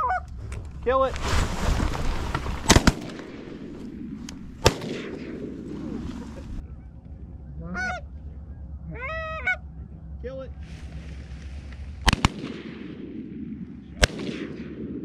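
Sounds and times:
geese honking: 0:00.0 - 0:00.4, 0:05.6 - 0:11.0
shotgun shots: 0:02.6 - 0:06.0, 0:12.0 - 0:15.0.

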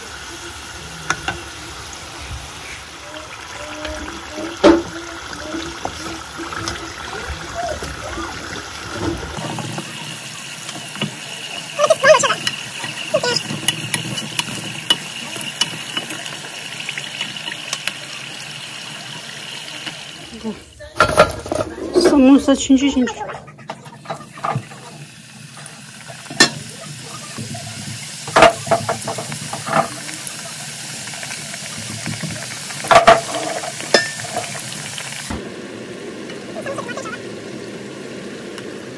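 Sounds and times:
oil sizzling and bubbling: 0:00.0 - 0:38.9.

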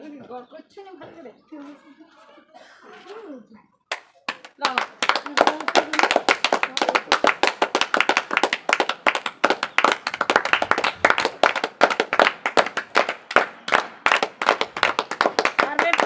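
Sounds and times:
group clapping: 0:03.9 - 0:16.0.

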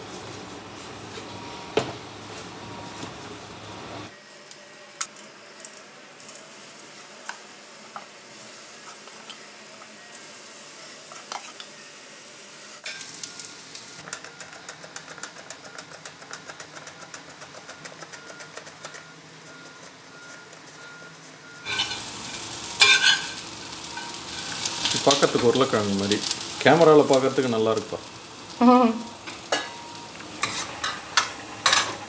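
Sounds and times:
vegetables sizzling in oil: 0:01.9 - 0:14.1, 0:20.8 - 0:32.0
metal ladle scraping pan: 0:21.6 - 0:24.9, 0:29.2 - 0:32.0.

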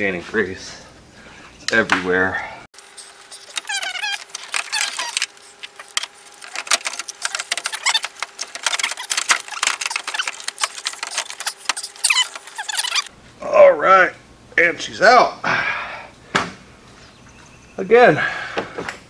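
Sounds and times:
squeaks: 0:02.8 - 0:13.1
plastic and metal clicks and scrapes: 0:03.1 - 0:13.1.

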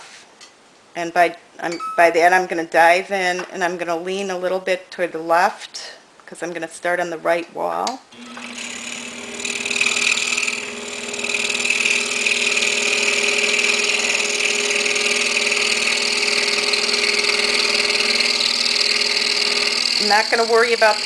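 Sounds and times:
scroll saw cutting wood: 0:08.2 - 0:21.0.

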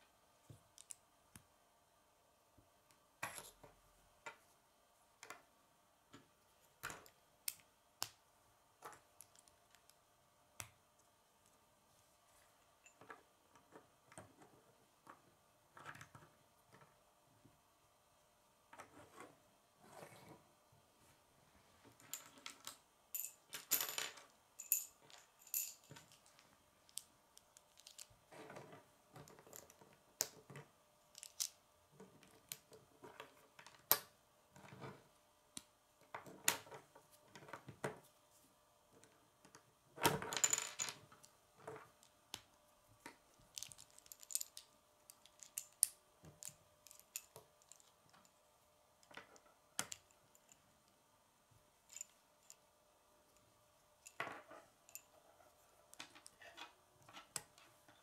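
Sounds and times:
plastic pieces clicking and clattering: 0:25.5 - 0:28.1.

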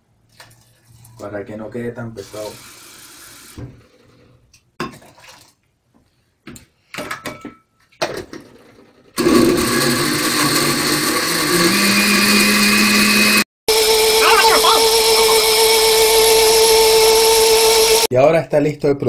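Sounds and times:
blender motor running: 0:09.2 - 0:18.1.

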